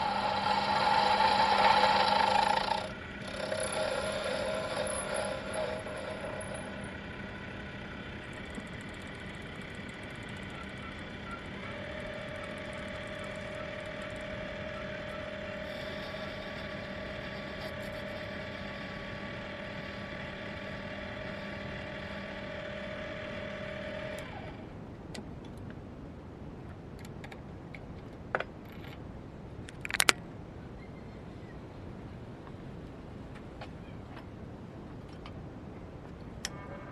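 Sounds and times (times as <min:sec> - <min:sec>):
lathe motor whine: 0:00.0 - 0:24.7
sharp metal clicks: 0:29.7 - 0:30.2.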